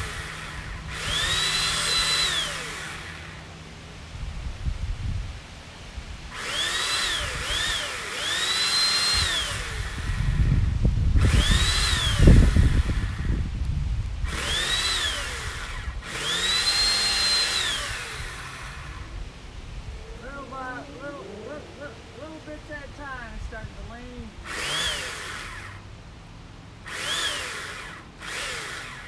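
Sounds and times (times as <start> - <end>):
electric saw motor whining: 0.0 - 3.7, 6.3 - 13.6, 14.2 - 23.6, 24.3 - 25.9, 26.8 - 29.0
heavy low rumble: 17.7 - 24.6.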